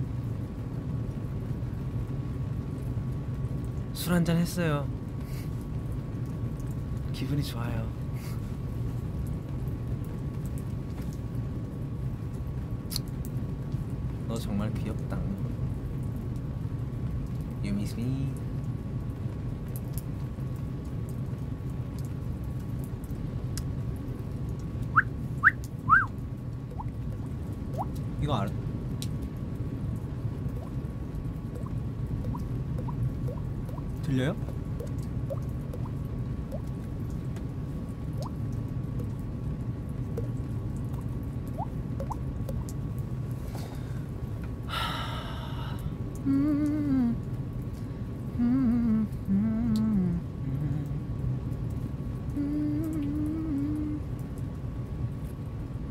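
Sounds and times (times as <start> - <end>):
steady low rumble: 0.0 - 55.9
mouth-made water-drop plinks: 24.9 - 28.0, 31.5 - 36.7, 38.2 - 38.4, 40.1 - 42.8
person whistling short notes: 25.0 - 26.1
hummed tone: 46.2 - 47.2, 48.4 - 51.0, 52.4 - 54.0.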